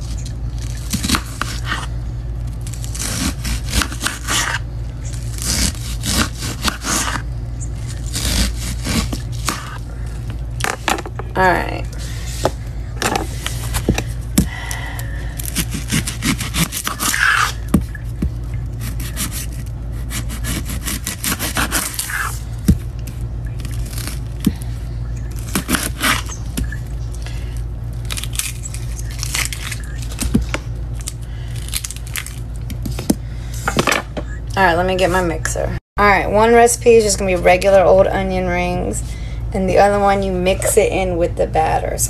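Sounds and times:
knife scraping onion: 0.0s - 1.9s, 2.7s - 9.8s, 15.4s - 18.2s, 18.8s - 22.5s, 25.3s - 26.8s
low hum: 0.0s - 42.0s.

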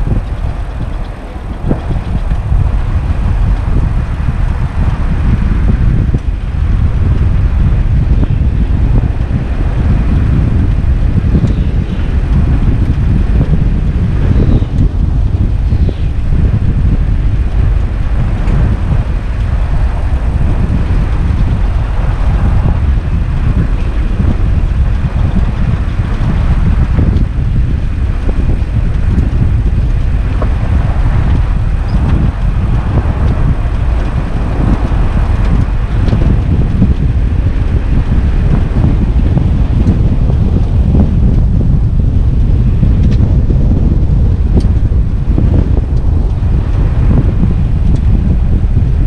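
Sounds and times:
truck engine and tyres rumbling: 0.0s - 49.0s
wind on microphone: 0.0s - 49.0s.

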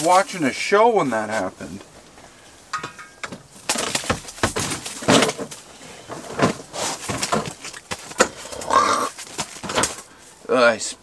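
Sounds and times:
rustling and handling gear: 0.0s - 10.8s
sharp clicks and scuffs: 6.4s - 10.1s.

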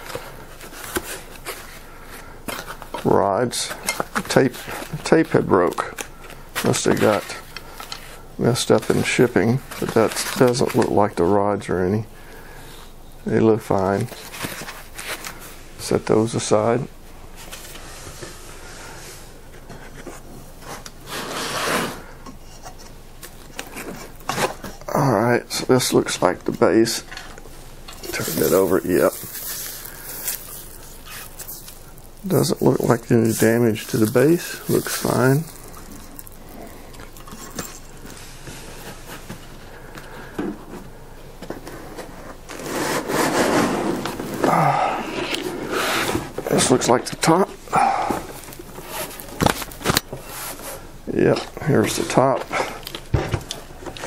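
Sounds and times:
scraping rub: 19.8s - 22.8s, 28.0s - 39.3s, 41.6s - 46.4s
panel scraping against foam: 21.1s - 22.1s, 42.5s - 44.3s
hands rubbing and rustling: 27.9s - 40.8s.

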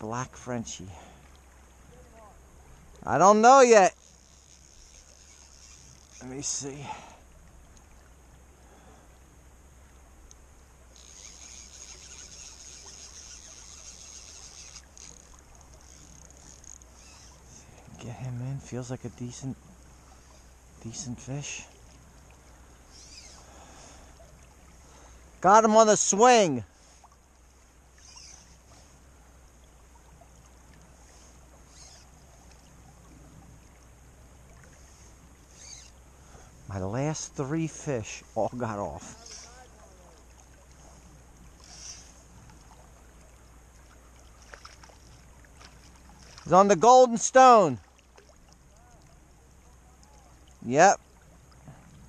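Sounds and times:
creek rushing: 0.0s - 52.0s
fly reel clicking rapidly: 3.9s - 6.3s, 10.9s - 17.6s, 22.9s - 23.5s, 27.9s - 28.8s, 31.2s - 32.1s, 35.5s - 36.0s, 39.0s - 39.6s, 41.6s - 42.3s.

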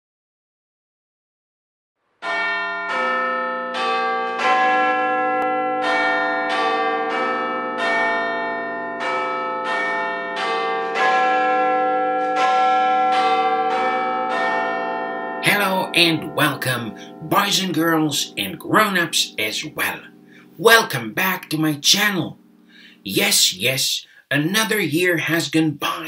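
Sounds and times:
church bells pealing: 2.2s - 23.6s.

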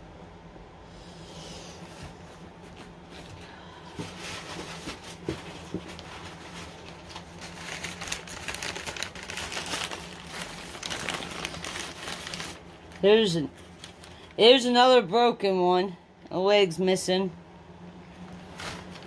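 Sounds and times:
newspaper crinkling and rustling: 4.0s - 14.6s, 18.2s - 19.0s.

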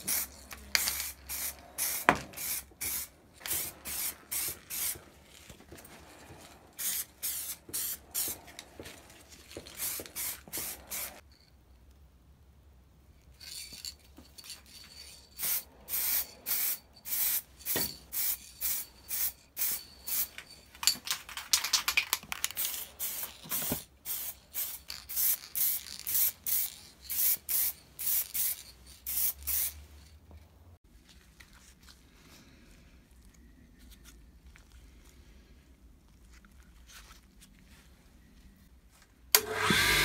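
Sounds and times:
spray can hissing bursts: 0.0s - 5.0s, 6.8s - 8.4s, 9.8s - 11.2s, 22.6s - 29.8s.

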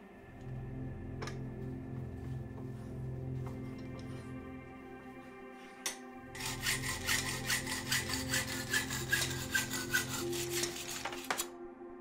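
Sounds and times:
soft background music: 0.0s - 12.0s
rapid sawing strokes: 6.4s - 11.5s.

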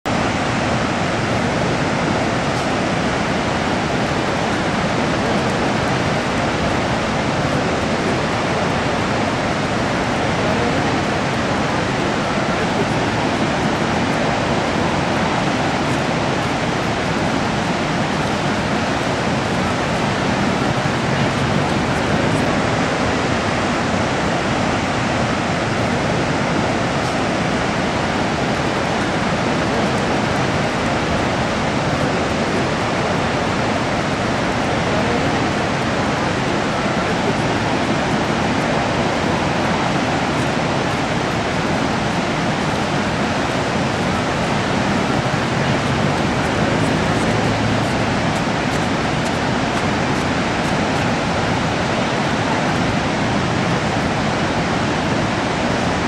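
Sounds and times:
waterfall rushing: 0.1s - 56.0s.

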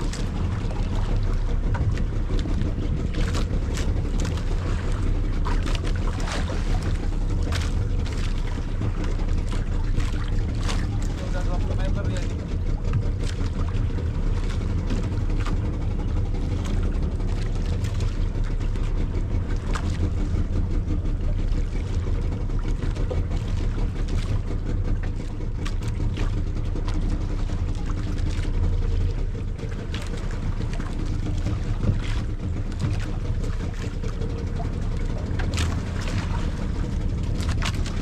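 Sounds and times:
boat motor running: 0.0s - 38.0s
water rushing along hull: 0.0s - 38.0s.

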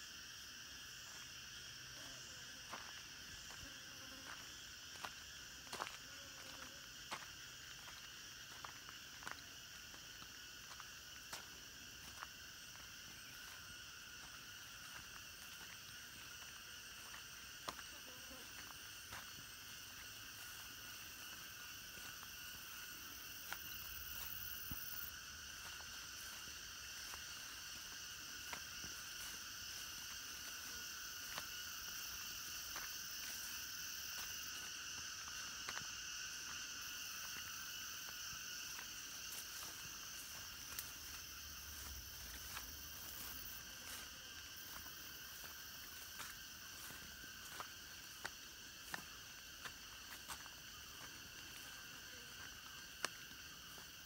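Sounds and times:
insects trilling: 0.0s - 54.0s
footsteps on a path: 0.1s - 54.0s.

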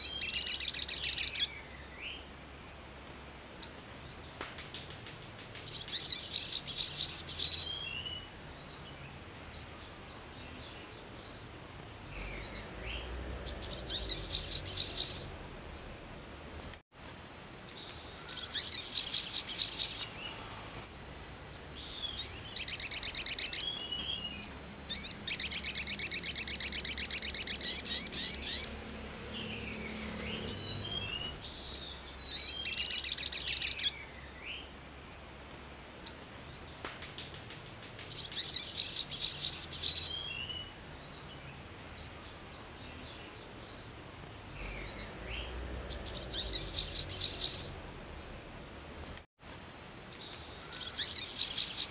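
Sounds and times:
bird chirps: 0.0s - 2.4s, 3.3s - 16.8s, 17.7s - 34.8s, 35.8s - 48.5s, 50.1s - 51.9s
bird trilling: 12.1s - 16.1s, 21.5s - 34.0s, 44.5s - 47.8s, 50.2s - 51.9s.

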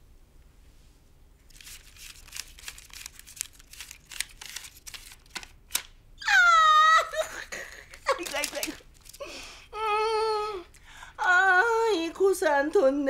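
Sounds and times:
banknotes being counted by hand: 1.5s - 5.8s, 8.0s - 9.2s.

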